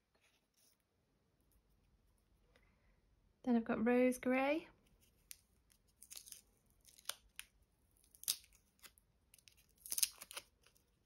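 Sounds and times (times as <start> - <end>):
paper label tearing and rustling: 5.1 - 10.9.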